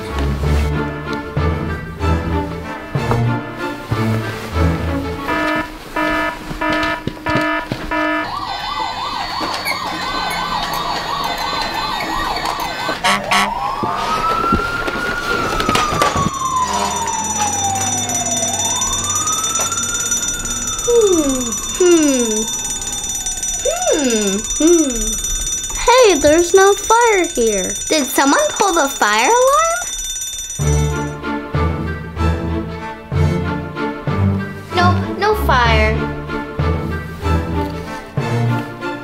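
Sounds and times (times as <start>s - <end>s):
toy fire truck siren: 5.3s - 31.2s.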